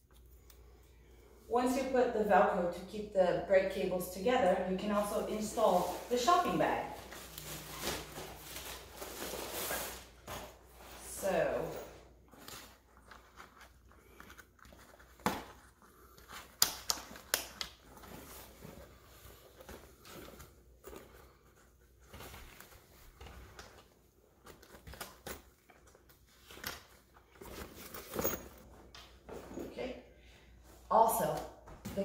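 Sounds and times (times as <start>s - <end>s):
fabric bag rustling: 5.0s - 15.1s.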